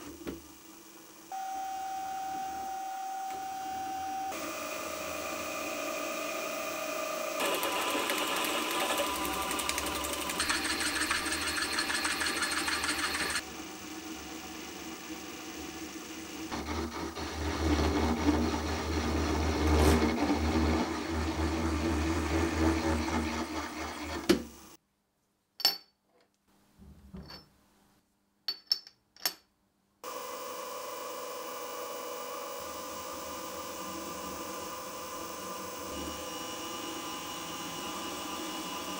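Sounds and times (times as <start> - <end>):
milling machine spindle running: 4.0 - 24.8
drill grinding metal: 4.3 - 24.7.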